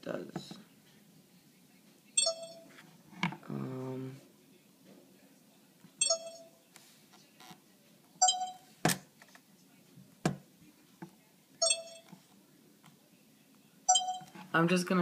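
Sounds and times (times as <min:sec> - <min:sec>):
short electronic beeps: 0:02.2 - 0:02.7, 0:06.0 - 0:06.5, 0:08.2 - 0:08.7, 0:11.6 - 0:12.0, 0:13.9 - 0:14.3.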